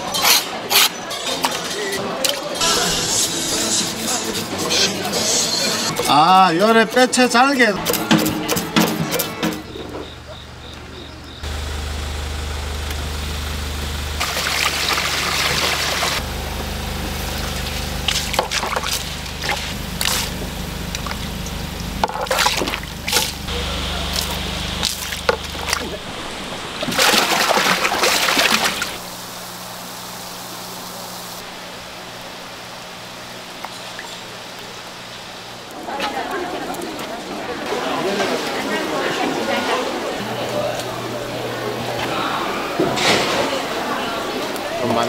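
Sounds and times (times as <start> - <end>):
fish splashing in a tub: 14.2 - 16.2, 17.5 - 20.3, 22.0 - 23.4, 24.0 - 29.0
steady low hum: 16.2 - 35.8.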